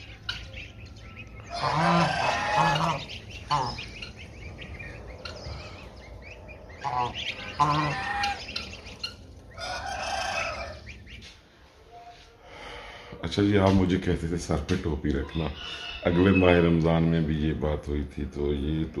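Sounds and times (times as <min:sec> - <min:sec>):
geese honking: 0:00.0 - 0:12.4, 0:14.5 - 0:17.2
goslings peeping: 0:00.0 - 0:12.4, 0:13.1 - 0:17.6.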